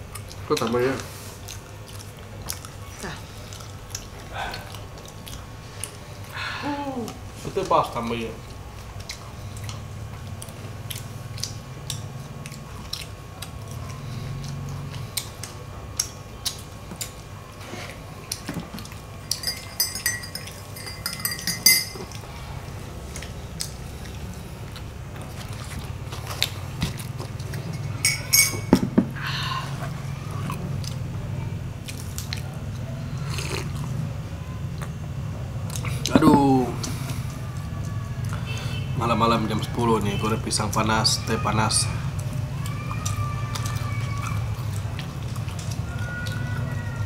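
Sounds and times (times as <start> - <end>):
steady low hum: 0.0 - 47.0
small eating clicks and taps: 9.0 - 17.2
teaspoon clinking against mug: 19.3 - 22.1, 27.8 - 28.8.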